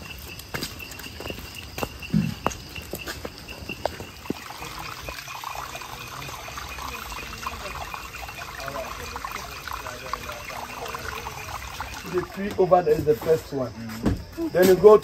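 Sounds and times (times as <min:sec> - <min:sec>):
footsteps on muddy trail: 0:00.0 - 0:05.2
insects trilling: 0:00.0 - 0:15.0.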